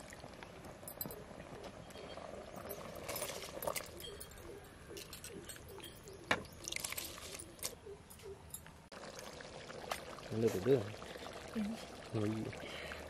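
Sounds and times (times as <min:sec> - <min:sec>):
bird calling: 0:03.7 - 0:08.6.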